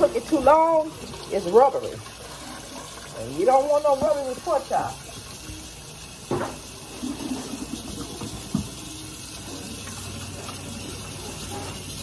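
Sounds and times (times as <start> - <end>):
meat rinsed by hand: 0.0 - 12.0
tap running into steel sink: 6.2 - 6.8, 7.9 - 9.0
thump: 6.3 - 6.6.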